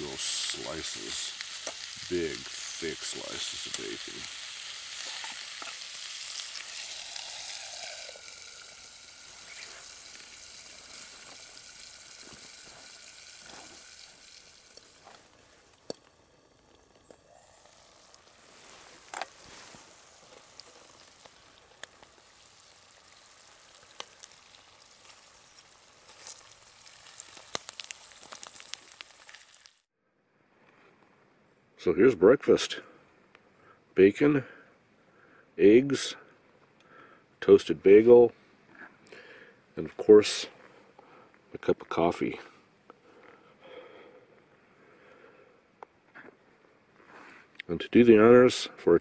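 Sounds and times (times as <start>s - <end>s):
bacon and eggs sizzling in pan: 0.0s - 29.9s.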